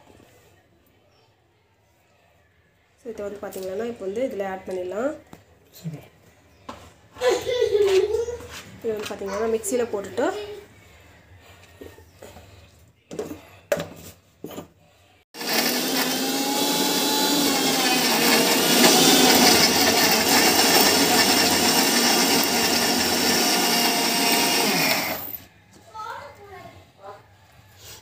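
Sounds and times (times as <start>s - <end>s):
mixer grinder motor grinding: 15.4s - 25.5s.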